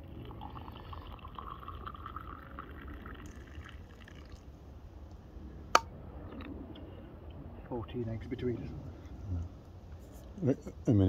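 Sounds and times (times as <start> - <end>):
hot drink pouring into mug: 0.0 - 4.5.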